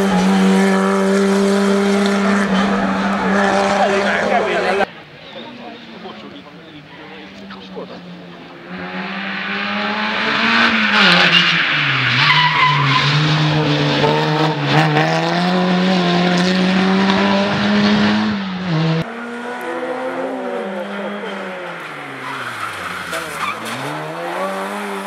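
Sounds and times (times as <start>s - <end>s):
rally car engine at full throttle: 0.0s - 5.0s, 5.8s - 25.0s
tyre squeal: 21.3s - 25.0s.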